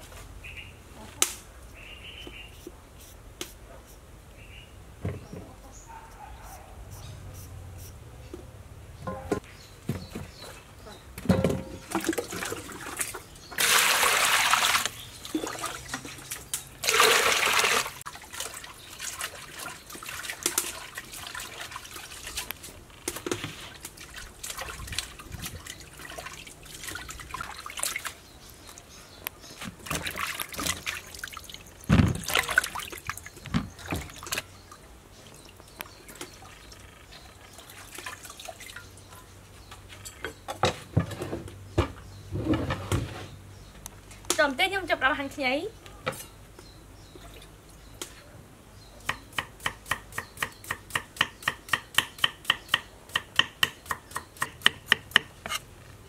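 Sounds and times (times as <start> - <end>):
knocks against metal basin: 9.1 - 9.4, 11.2 - 11.9
water splashing and trickling: 11.3 - 40.3, 47.0 - 48.0
rushes of water: 23.7 - 28.2, 29.9 - 33.3.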